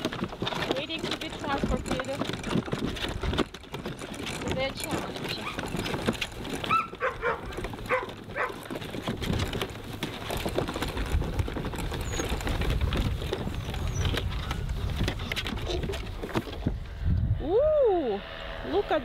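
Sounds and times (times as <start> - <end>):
wagon knocks and rattles: 0.0 - 16.8
plastic wagon wheels rolling: 0.0 - 17.0
puppies whining: 6.5 - 8.7, 11.9 - 12.6, 13.6 - 14.2.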